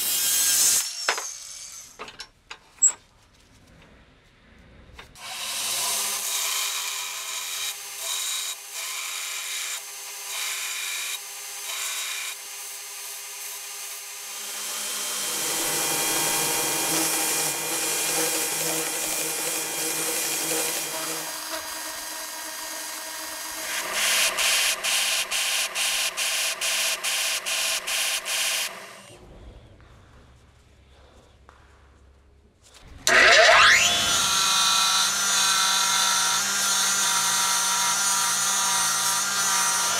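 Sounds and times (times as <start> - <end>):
belt grinder grinding steel: 5.2 - 29.1, 33.1 - 39.9.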